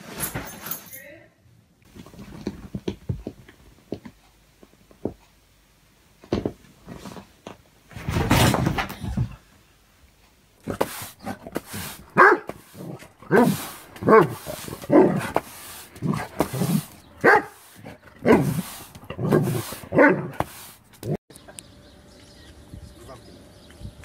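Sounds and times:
dog barking: 0:12.1 - 0:12.6, 0:13.3 - 0:15.3, 0:17.2 - 0:20.4.

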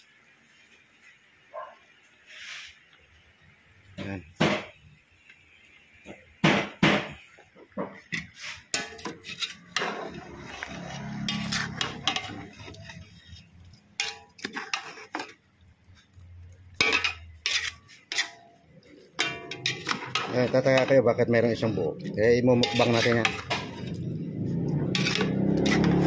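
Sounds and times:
spoon scraping cooking pot: 0:07.9 - 0:15.4, 0:16.7 - 0:24.2, 0:24.8 - 0:26.0.

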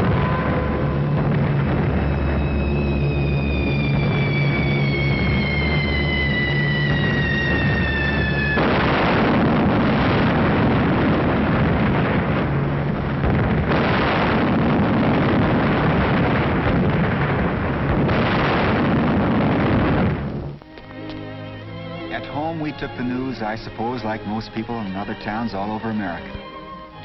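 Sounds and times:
explosions and rumbling: 0:00.0 - 0:20.7
falling whine: 0:00.0 - 0:27.0.

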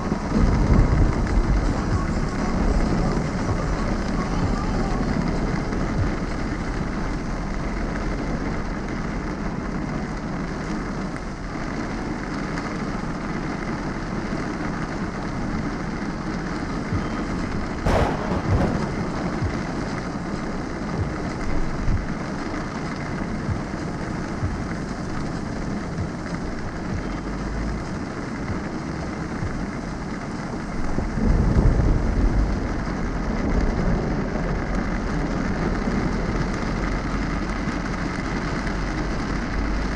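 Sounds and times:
thunder crack: 0:00.0 - 0:08.7, 0:16.8 - 0:25.1
low thunder rumble: 0:00.0 - 0:39.9
rain on windshield: 0:00.0 - 0:39.9
tyres on wet road: 0:00.0 - 0:39.9.

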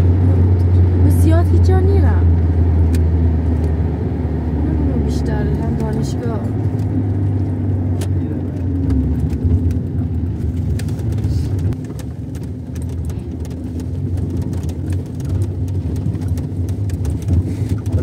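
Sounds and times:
car engine and road rumble: 0:00.0 - 0:18.0
gravel clicks and knocks: 0:08.0 - 0:18.0.

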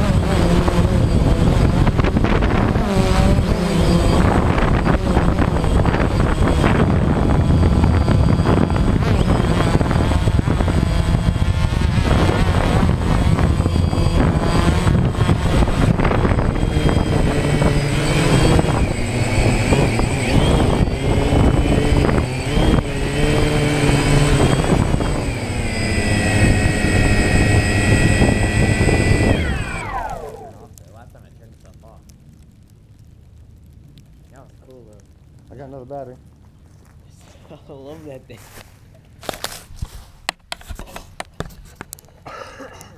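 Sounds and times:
drone propellers whining: 0:00.0 - 0:31.3.

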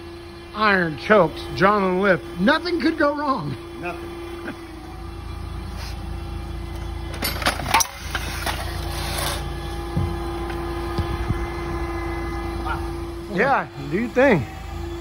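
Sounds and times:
forklift engine humming: 0:00.0 - 0:15.0
metal clanks: 0:06.7 - 0:09.5.

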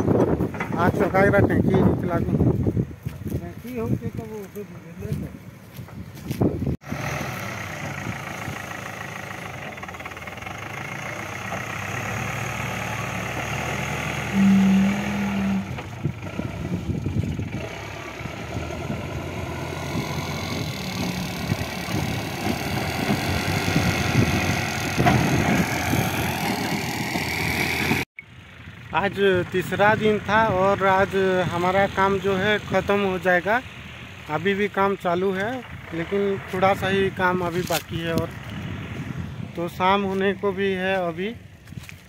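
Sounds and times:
diesel engine running: 0:03.8 - 0:42.0
loud single-pitch tone: 0:14.2 - 0:15.9.

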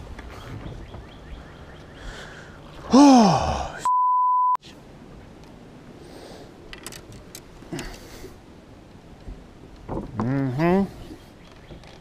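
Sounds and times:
person shouting: 0:02.9 - 0:03.8
censor bleep: 0:03.8 - 0:04.6.

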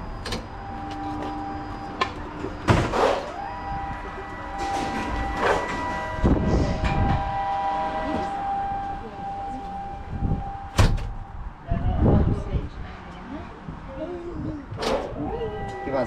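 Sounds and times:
machine whine: 0:00.0 - 0:11.3
metal door clunks and rattles: 0:10.7 - 0:11.4.

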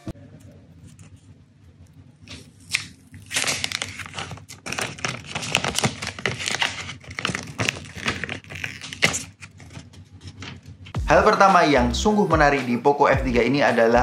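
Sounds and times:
plastic film crinkling: 0:00.6 - 0:11.0.

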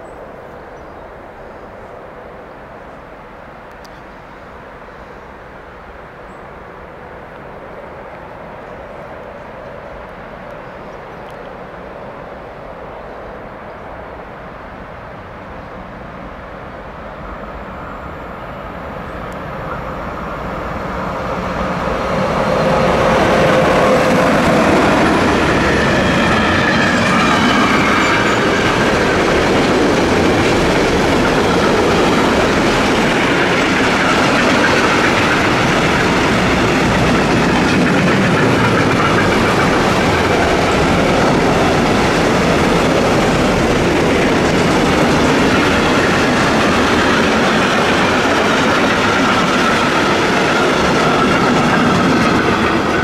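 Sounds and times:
freight train rolling past: 0:00.0 - 0:53.0
wheels clacking over rail joints: 0:21.7 - 0:53.0.

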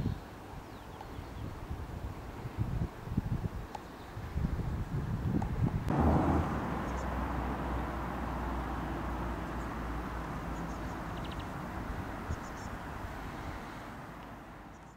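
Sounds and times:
low rumble: 0:05.9 - 0:10.6.

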